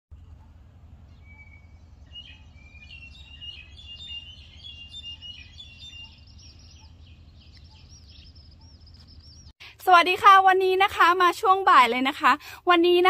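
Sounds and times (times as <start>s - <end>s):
low steady rumble: 0.1s - 9.5s
birds singing: 0.1s - 9.6s.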